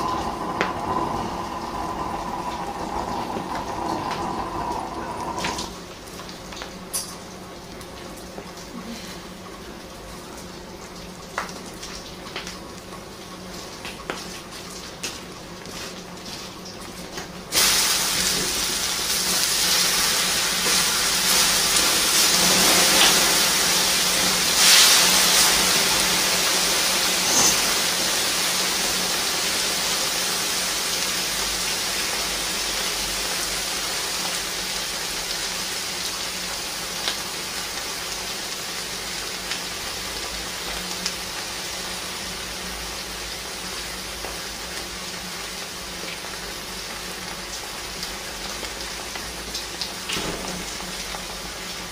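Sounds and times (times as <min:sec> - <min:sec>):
hissing and crackling of burning: 0:00.0 - 0:06.7, 0:17.5 - 0:50.2.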